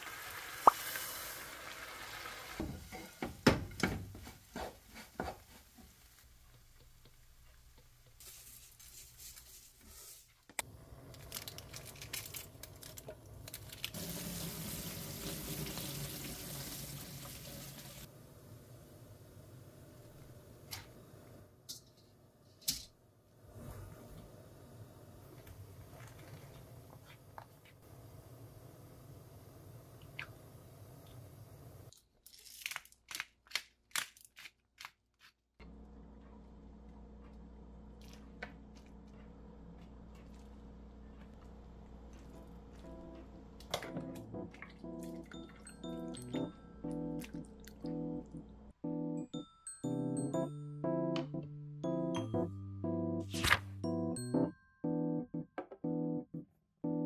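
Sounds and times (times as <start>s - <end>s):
tap water running onto noodles: 13.9s - 18.1s.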